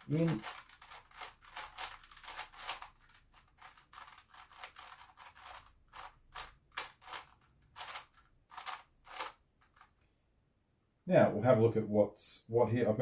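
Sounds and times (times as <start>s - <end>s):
puzzle cube plastic clicks: 0.0s - 10.0s.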